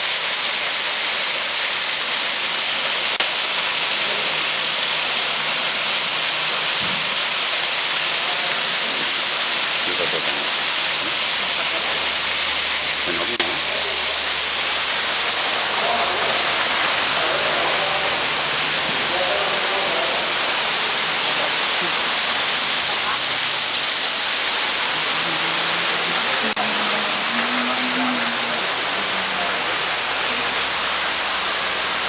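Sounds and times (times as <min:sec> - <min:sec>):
waterfall rushing into pool: 0:00.0 - 0:32.0
faint voices: 0:08.0 - 0:31.3.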